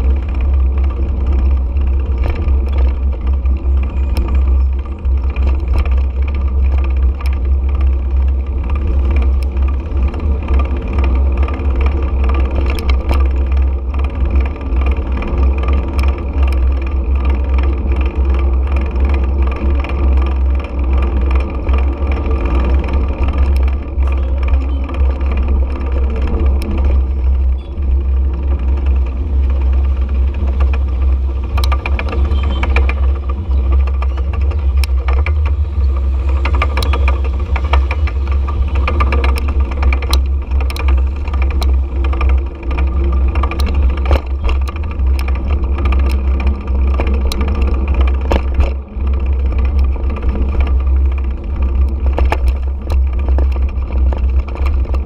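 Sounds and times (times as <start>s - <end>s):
motorcycle engine drone: 0.0s - 55.0s
sharp clicks and rattles: 0.0s - 55.0s
wind rumble on microphone: 0.0s - 55.0s.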